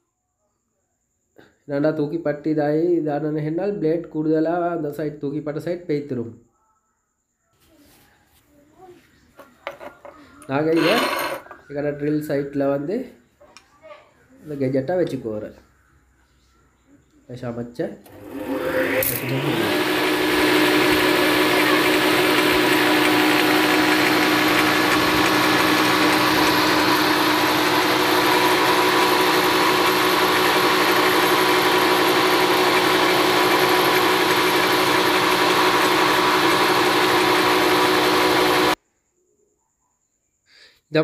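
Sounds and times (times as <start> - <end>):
woodworking machine motor running: 10.7 - 11.4, 18.0 - 38.8
blade grinding on wheel: 10.7 - 11.5, 18.1 - 38.8.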